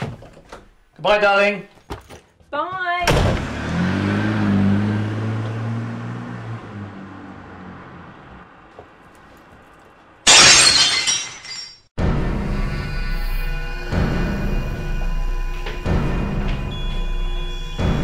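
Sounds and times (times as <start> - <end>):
car engine starting and driving: 3.0 - 9.9
glass breaking: 10.3 - 11.9.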